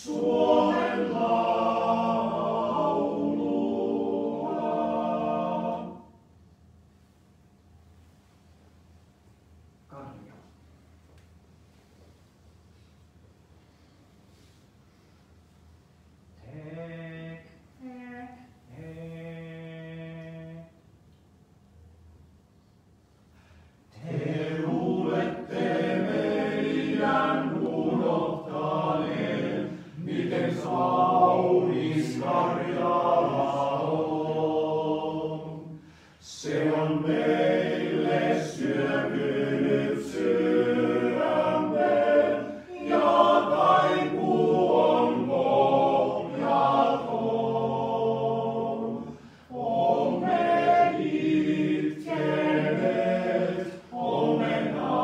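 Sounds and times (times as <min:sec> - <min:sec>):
male choir singing a cappella: 0:00.0 - 0:06.2, 0:16.4 - 0:17.6, 0:18.7 - 0:20.8, 0:23.9 - 0:55.0.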